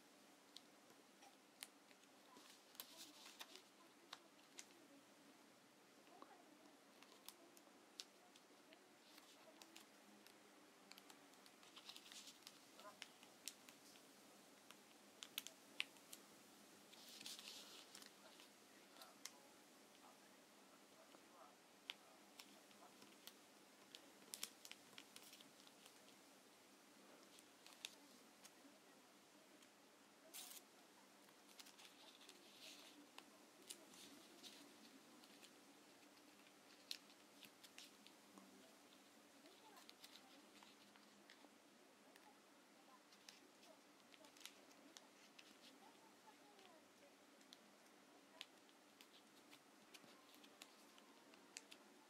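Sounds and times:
paper rustle: 1.5 - 4.9, 6.9 - 16.3, 16.9 - 20.3, 20.9 - 26.3, 27.0 - 28.7, 29.5 - 41.5, 42.9 - 46.8, 47.4 - 52.0
paper being folded and creased: 1.6 - 4.9, 6.9 - 16.3, 16.9 - 19.4, 21.8 - 26.2, 27.1 - 28.7, 29.6 - 41.5, 43.0 - 46.8, 48.3 - 52.0.

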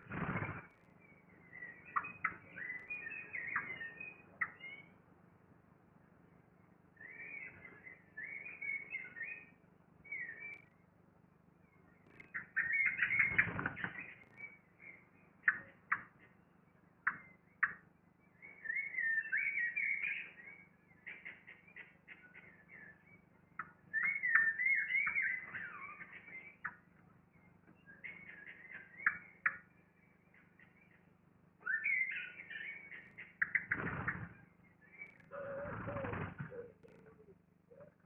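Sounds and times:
faint low hum: 0.0 - 38.0
songbird warbling: 0.1 - 4.9, 11.6 - 16.2, 18.4 - 26.8, 27.4 - 38.0.

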